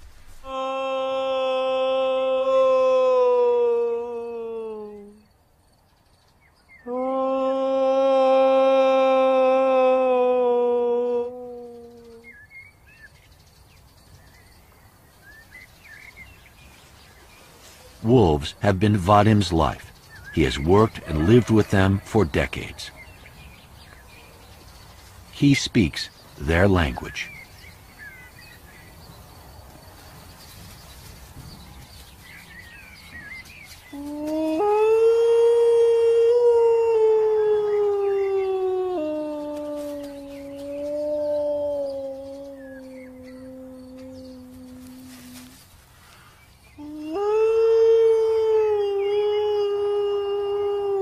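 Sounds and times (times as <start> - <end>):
quiet forest ambience: 0.0 - 51.0
man imitating wolf howl: 0.4 - 5.3, 6.9 - 12.4, 20.7 - 22.8, 33.9 - 45.6, 46.8 - 51.0
faint bird chirps: 4.4 - 7.1, 11.3 - 34.6, 37.6 - 47.4.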